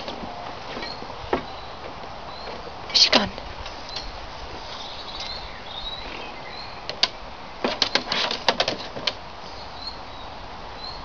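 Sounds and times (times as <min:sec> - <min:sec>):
birds chirping: 0:00.0 - 0:08.6, 0:09.4 - 0:11.0.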